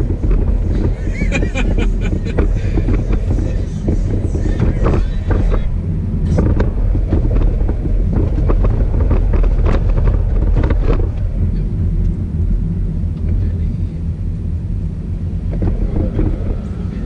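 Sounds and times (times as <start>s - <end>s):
knocks and rattles: 0.0s - 11.2s
road and engine rumble in car: 0.0s - 17.0s.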